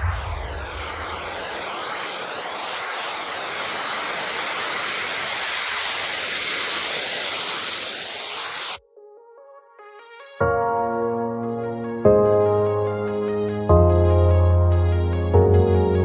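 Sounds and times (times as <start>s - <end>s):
rushing hiss of noise: 0.0s - 8.8s.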